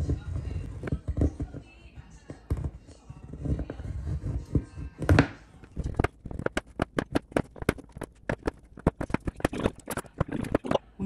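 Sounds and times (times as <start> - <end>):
knife chopping chocolate: 3.4 - 10.8.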